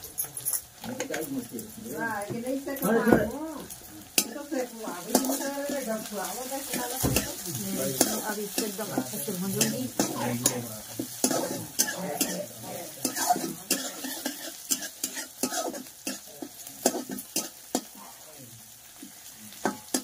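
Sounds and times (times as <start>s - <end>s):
onions sizzling in hot oil: 0.0s - 20.0s
steel spoon scraping pan: 6.7s - 17.9s.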